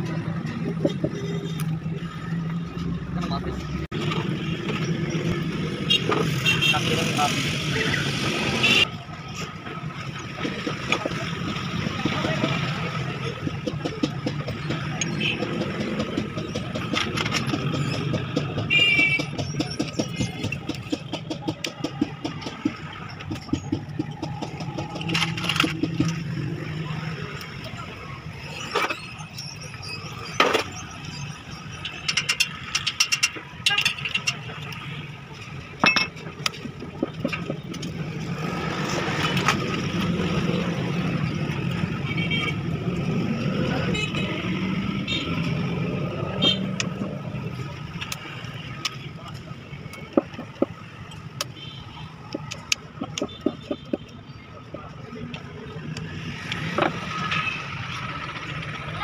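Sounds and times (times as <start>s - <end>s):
hand tools clicking on metal: 32.0s - 34.8s.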